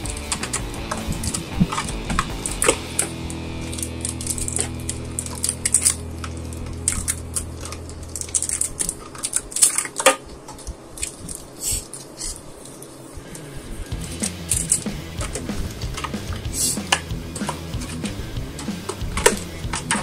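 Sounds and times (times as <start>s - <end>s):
foil packs crinkling: 4.2s - 12.8s.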